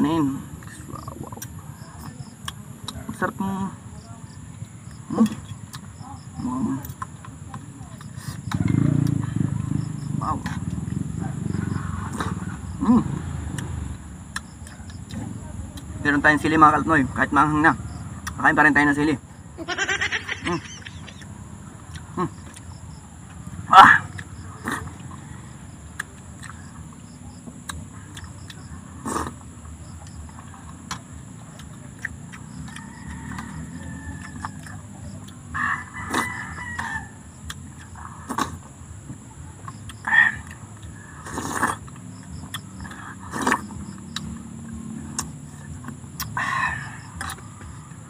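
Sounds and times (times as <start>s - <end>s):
high insect drone: 0.0s - 48.0s
chewing mouth noises: 20.9s - 47.8s.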